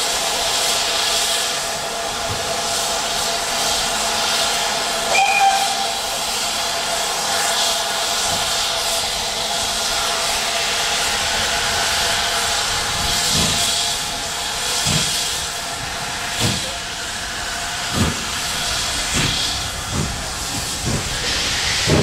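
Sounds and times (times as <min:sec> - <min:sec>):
steam hissing: 0:00.0 - 0:22.0
steam locomotive whistle toot: 0:05.1 - 0:06.3.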